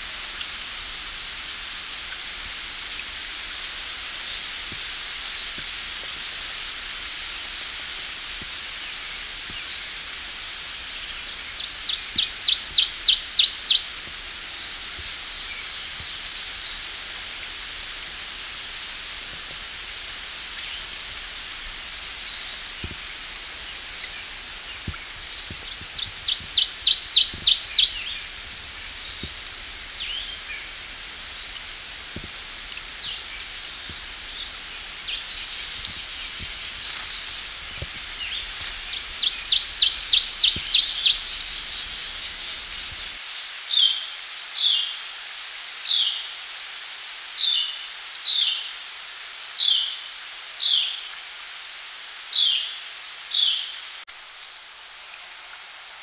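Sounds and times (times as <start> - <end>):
background hiss: 0.0 - 56.0
bird singing loud chant: 11.1 - 14.7, 23.7 - 29.3, 33.0 - 45.3
faint bird chirps: 20.6 - 28.2.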